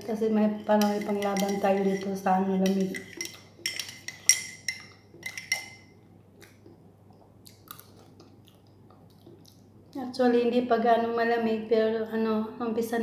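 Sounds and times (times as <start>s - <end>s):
teaspoon clinking in ceramic mug: 0.7s - 5.9s.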